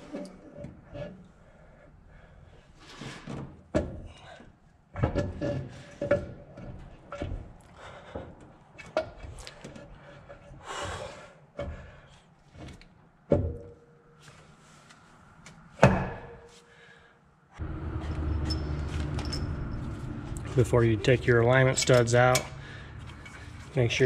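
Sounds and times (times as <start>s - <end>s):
metal clunks with ringing: 15.8s - 16.5s
metal scraping: 17.6s - 24.0s.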